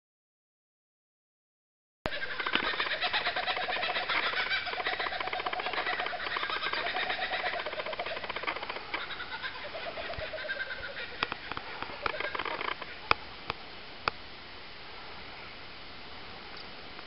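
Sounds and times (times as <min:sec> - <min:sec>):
birds calling and singing: 0:02.1 - 0:13.0
sharp clicks: 0:02.5 - 0:09.1, 0:11.2 - 0:13.6
outdoor hiss: 0:10.6 - 0:17.0.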